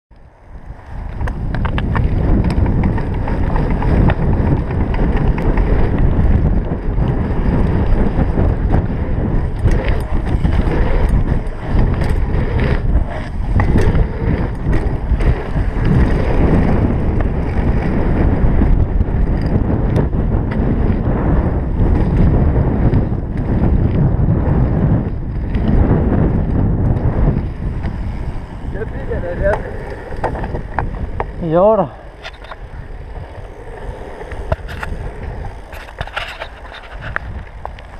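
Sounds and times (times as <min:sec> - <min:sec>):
bike clicking and rattling: 0:00.1 - 0:37.9
bike tyre rumble: 0:00.1 - 0:37.9
wind buffeting microphone: 0:00.2 - 0:37.9.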